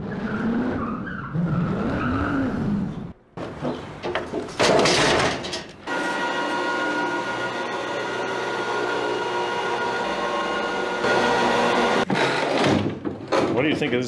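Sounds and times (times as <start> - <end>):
wooden chair crashing: 3.4 - 5.7, 12.1 - 13.6
electric hoist motor whine: 5.8 - 12.1.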